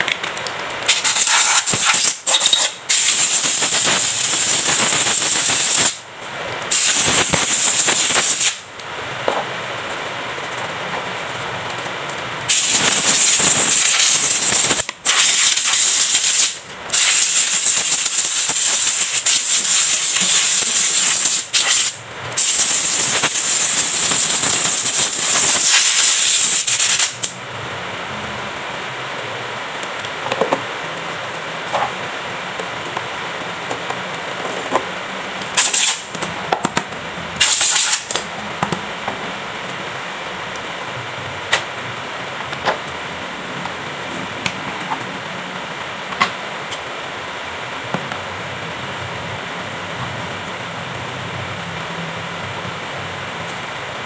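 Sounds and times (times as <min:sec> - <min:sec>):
compressed air blow gun hissing: 0:00.9 - 0:06.0, 0:06.7 - 0:08.6, 0:12.5 - 0:27.2, 0:35.6 - 0:36.1, 0:37.4 - 0:38.1.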